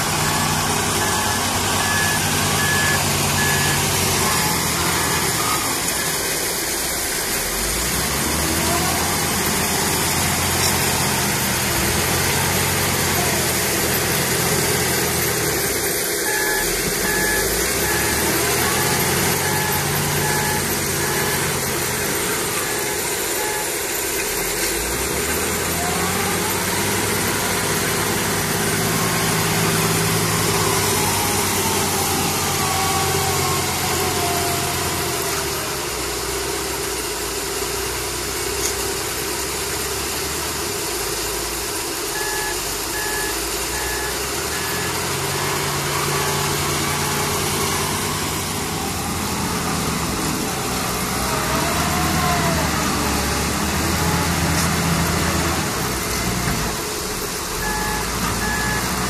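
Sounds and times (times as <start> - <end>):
diesel loader engine revving: 0.0 - 59.0
backup alarm beeping: 16.2 - 23.9.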